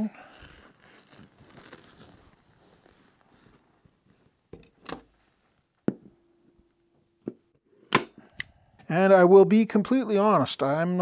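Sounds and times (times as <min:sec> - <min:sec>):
vinyl seat cover rustling: 0:00.4 - 0:04.4.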